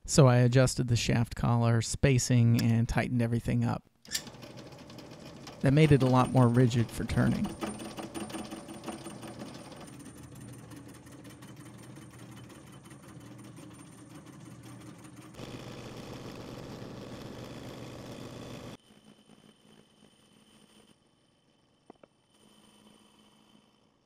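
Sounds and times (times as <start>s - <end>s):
metal lathe running: 4.1s - 18.8s.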